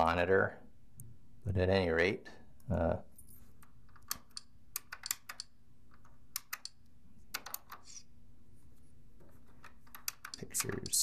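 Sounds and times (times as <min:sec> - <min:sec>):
computer keyboard key clicks: 0:03.9 - 0:07.8, 0:09.6 - 0:11.0.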